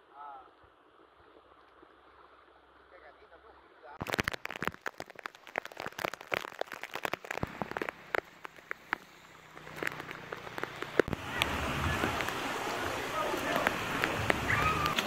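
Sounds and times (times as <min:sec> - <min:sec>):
raindrops ticking close by: 0:04.0 - 0:15.0
heavy rain hissing: 0:06.8 - 0:15.0.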